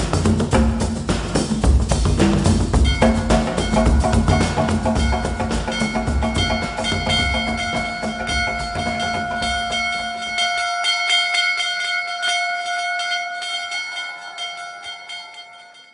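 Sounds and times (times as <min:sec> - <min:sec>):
bass beat: 0:00.0 - 0:10.4
bell-like ringing tones: 0:02.8 - 0:15.9.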